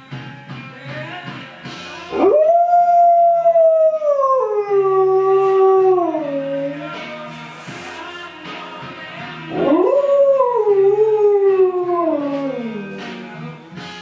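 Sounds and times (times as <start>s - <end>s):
dog howling: 2.1s - 6.8s, 9.5s - 12.9s.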